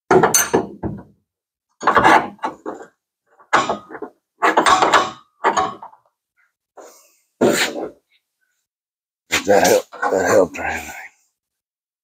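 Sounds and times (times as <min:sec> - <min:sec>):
pry bar scraping and clunking metal: 0:01.8 - 0:06.1.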